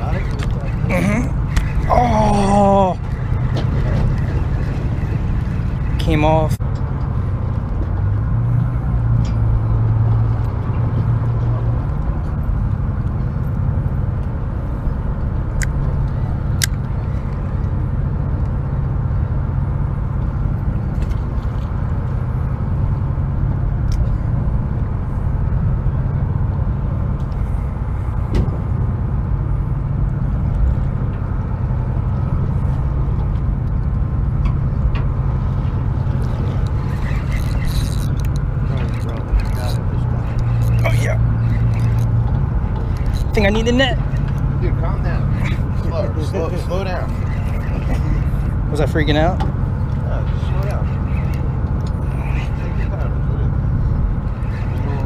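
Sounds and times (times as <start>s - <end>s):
boat engine drone: 0.0s - 55.0s
sharp ticks: 36.1s - 44.6s, 49.8s - 53.1s.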